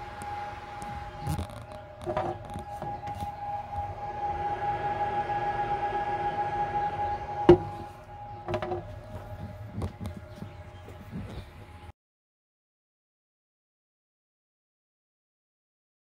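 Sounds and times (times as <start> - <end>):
small electric motor whining: 0.0 - 11.9.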